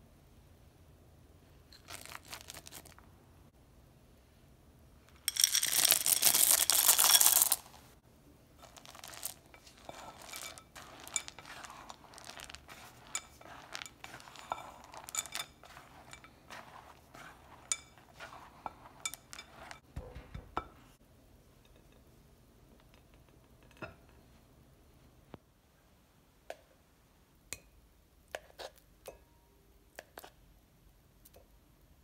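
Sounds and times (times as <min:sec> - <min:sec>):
chocolate chips clattering into bowl: 0:01.8 - 0:03.0, 0:05.1 - 0:07.8, 0:08.6 - 0:19.8
spatula scraping glass bowl: 0:08.6 - 0:19.9.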